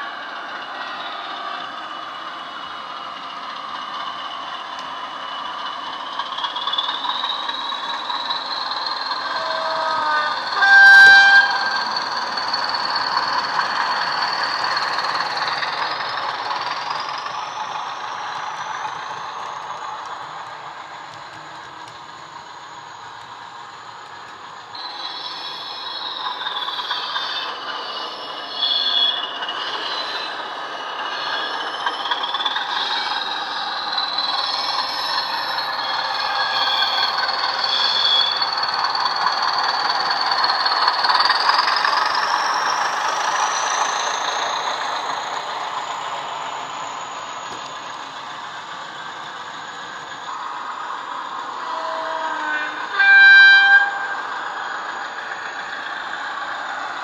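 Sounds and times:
turbocharger whistle: 6.4 - 21.1, 24.8 - 50.6, 51.3 - 56.6
loud train horn: 9.3 - 11.9, 51.6 - 54.3.

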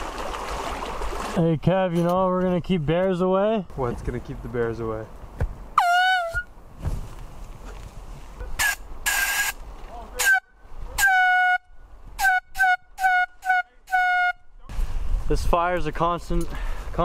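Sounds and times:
air horn hissing sputter: 8.6 - 9.6
air horn blasts: 10.2 - 14.5.

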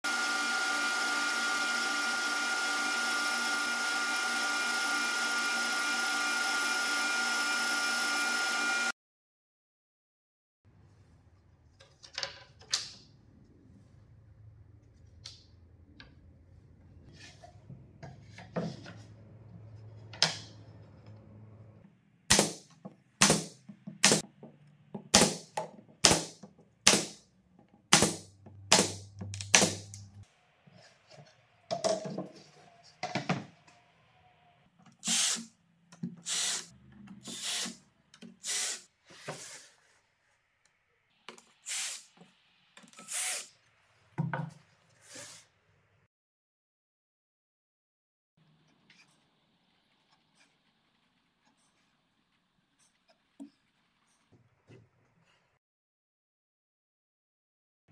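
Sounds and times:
cordless drill driving screws: 35.0 - 35.5, 36.3 - 37.8, 43.0 - 43.5.

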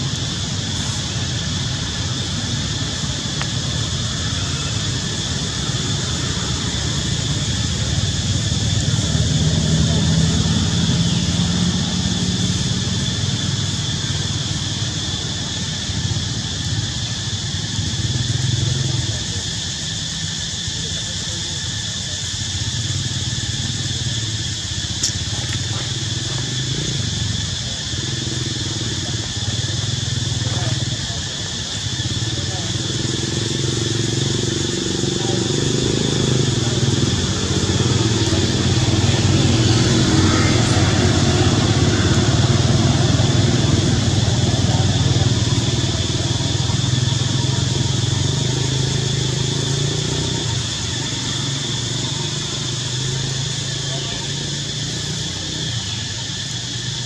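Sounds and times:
small engine running: 0.0 - 57.0
sharp click: 25.0 - 25.2.

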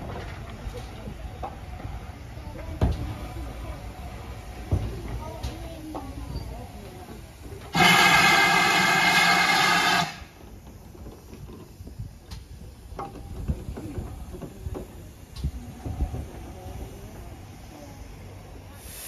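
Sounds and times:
steam locomotive whistle: 7.7 - 10.4.

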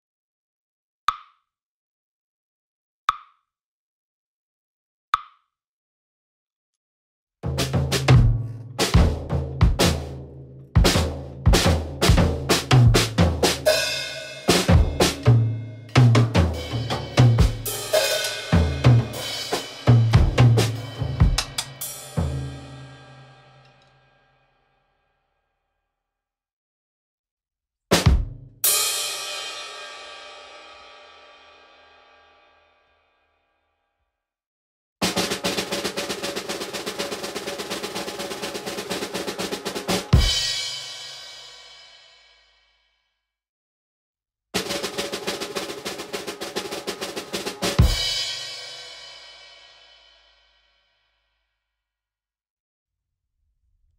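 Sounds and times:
drum kit playing: 7.4 - 23.2, 27.9 - 29.4, 35.0 - 41.4, 44.6 - 49.2.

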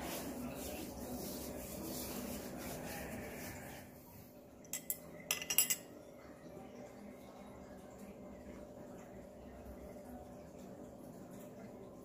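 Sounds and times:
hands rubbing together: 0.0 - 3.9
metal rod clinking on glass beaker: 4.6 - 5.9.

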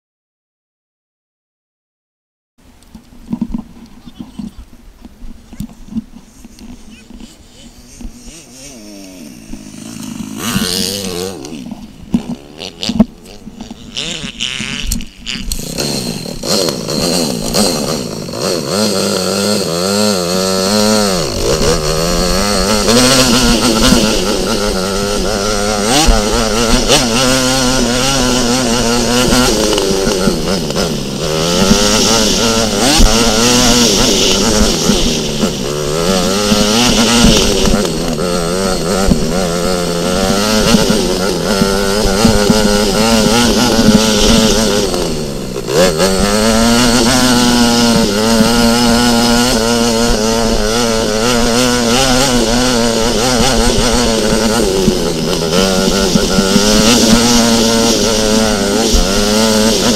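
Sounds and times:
dirt bike engine revving: 5.4 - 59.9.

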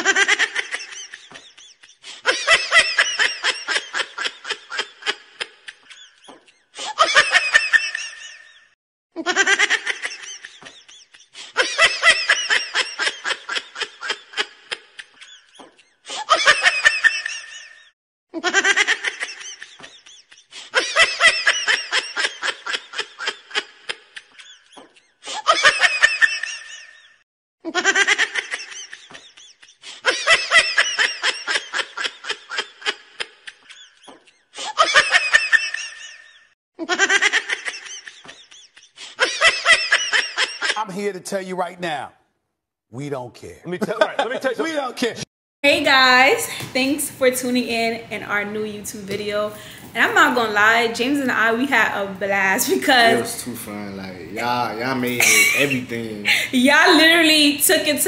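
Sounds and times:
person laughing: 43.7 - 45.2, 52.7 - 57.2.

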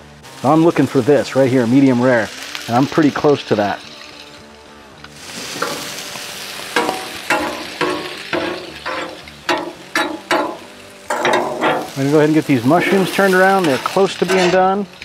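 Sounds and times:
food sizzling: 0.0 - 15.0
metal spatula scraping griddle: 5.2 - 15.0.

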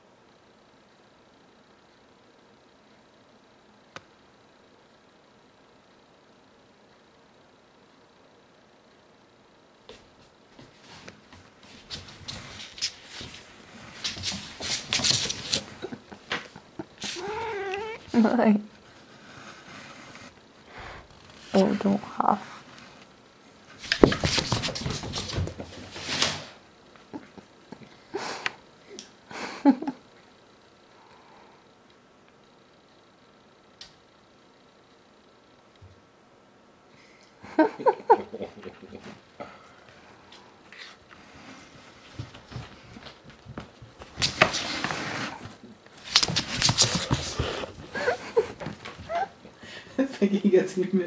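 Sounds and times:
cat scrambling on wooden floor: 11.6 - 18.2, 23.8 - 26.4, 42.1 - 49.2.

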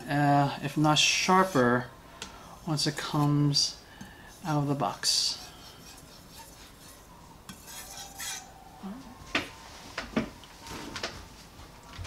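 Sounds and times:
knife scraping on whetstone: 4.4 - 8.5.

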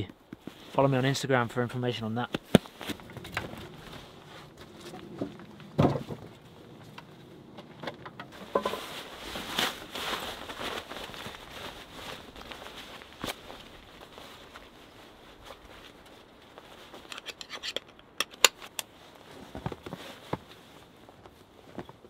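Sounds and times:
jacket and straps rustling: 0.2 - 1.1, 2.1 - 7.6, 8.3 - 22.0
footsteps in snow: 2.4 - 5.8, 8.4 - 17.1, 18.9 - 22.0.

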